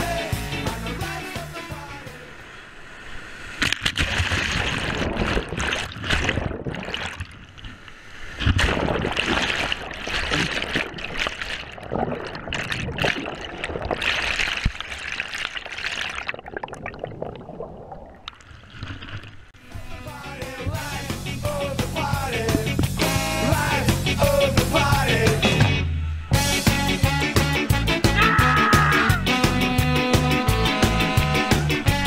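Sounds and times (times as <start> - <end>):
water splashes and gurgles: 3.5 - 19.6.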